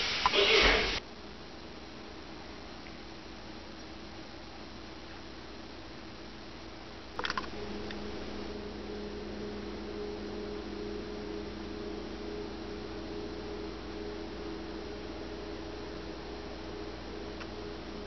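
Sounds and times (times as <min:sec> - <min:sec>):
room noise hiss: 0:00.0 - 0:18.0
steady low hum: 0:00.0 - 0:18.0
clatter of clicks: 0:07.2 - 0:07.5.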